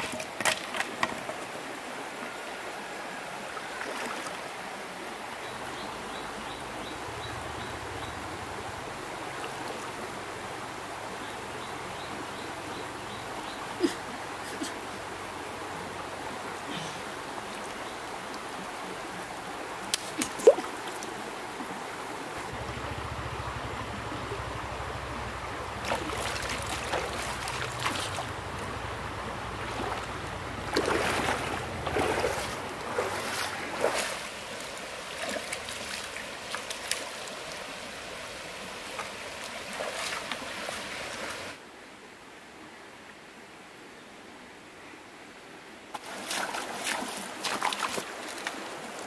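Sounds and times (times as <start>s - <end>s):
stream running over rocks: 0.0s - 49.0s
food splashing in water: 29.6s - 34.2s.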